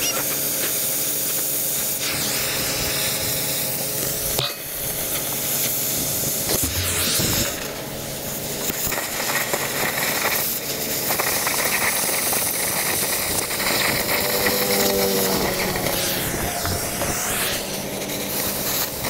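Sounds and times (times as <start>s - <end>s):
welding arc crackling hiss: 0.0s - 19.0s
engine running: 12.6s - 19.0s.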